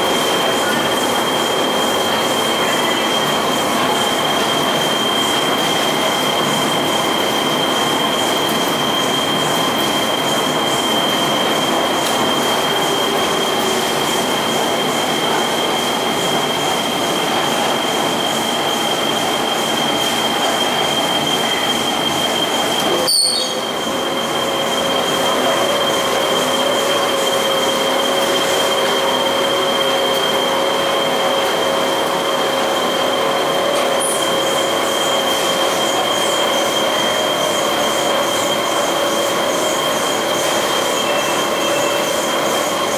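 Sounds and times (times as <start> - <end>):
lower machine whine: 0.0 - 42.9
washer extractor high whine: 0.0 - 42.9.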